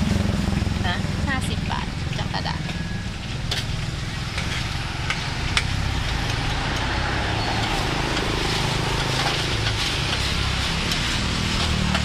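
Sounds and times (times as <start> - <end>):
oil sizzling in a wok: 2.7 - 12.0.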